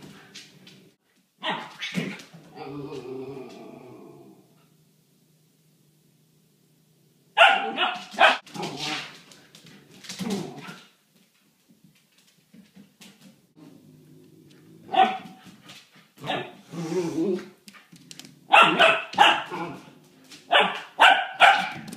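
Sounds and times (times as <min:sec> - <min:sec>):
puppy barking: 0:01.4 - 0:02.0, 0:07.4 - 0:08.5, 0:14.9 - 0:15.4, 0:18.5 - 0:19.8, 0:20.5 - 0:21.9
puppy growling: 0:02.5 - 0:04.8, 0:13.6 - 0:15.0.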